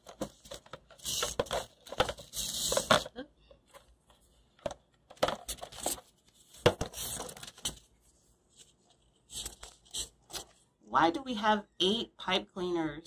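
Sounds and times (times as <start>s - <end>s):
pipe cleaners rustling on balloon: 0.0s - 4.5s, 5.2s - 10.7s.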